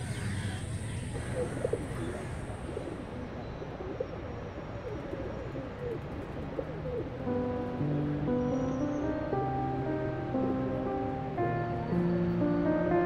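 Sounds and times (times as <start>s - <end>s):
pigeons cooing: 0.0s - 7.6s
soft music: 6.4s - 13.0s.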